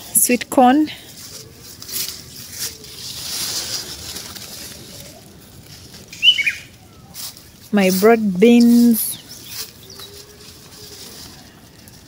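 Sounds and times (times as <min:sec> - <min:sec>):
dry leaves rustling and crackling: 0:00.0 - 0:12.0
high falling chirp: 0:06.1 - 0:07.2.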